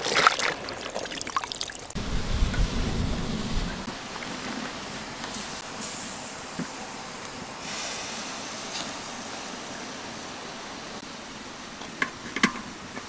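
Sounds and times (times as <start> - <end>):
pan hissing and steaming: 5.3 - 13.0.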